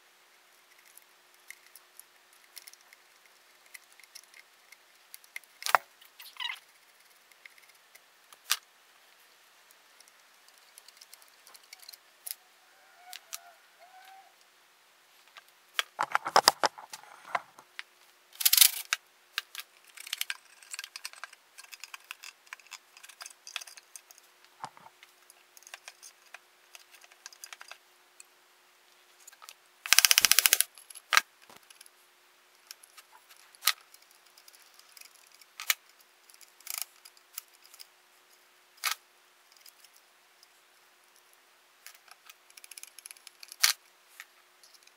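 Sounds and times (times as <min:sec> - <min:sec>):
metal parts clicking and clinking: 0:18.4 - 0:19.0, 0:19.8 - 0:24.2
metal parts rattling: 0:18.4 - 0:19.0, 0:19.8 - 0:24.2.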